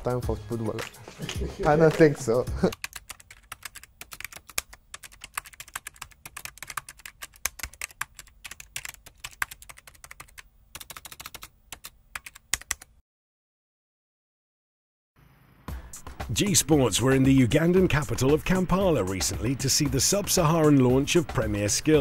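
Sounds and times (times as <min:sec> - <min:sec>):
rapid keyboard typing: 0:01.6 - 0:12.9.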